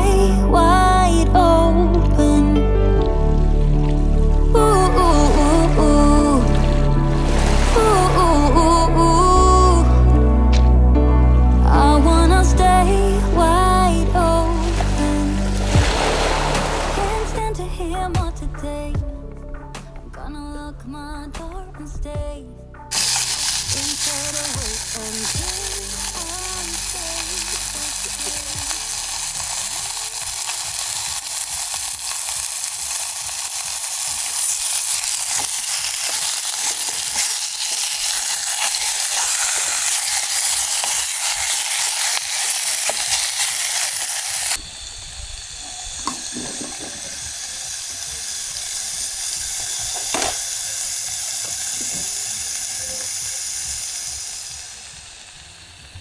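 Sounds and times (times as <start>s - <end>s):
pork sizzling in a hot pan: 14.8s - 17.2s, 22.9s - 56.0s.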